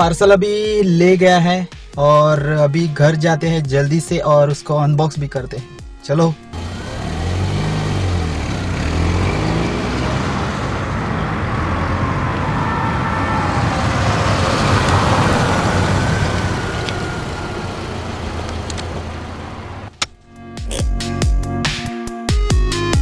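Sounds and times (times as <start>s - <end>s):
car engine and road noise: 6.4s - 20.5s.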